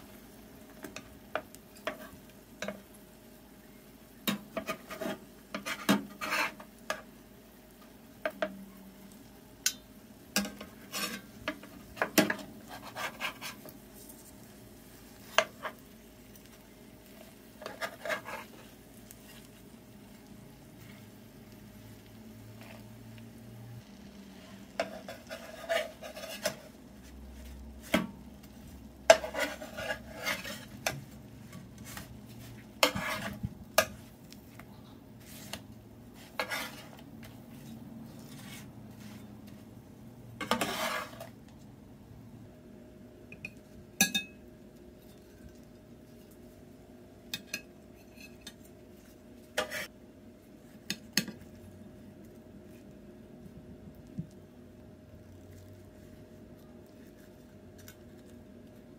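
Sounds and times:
utensils scraping frying pan: 0:00.9 - 0:02.9, 0:04.3 - 0:07.1, 0:10.4 - 0:19.7, 0:24.7 - 0:34.1, 0:35.2 - 0:39.7, 0:40.4 - 0:41.4, 0:47.3 - 0:50.0.

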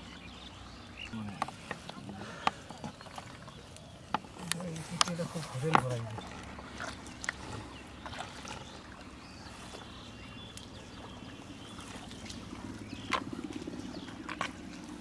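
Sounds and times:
wet mud squelching: 0:01.0 - 0:15.0.

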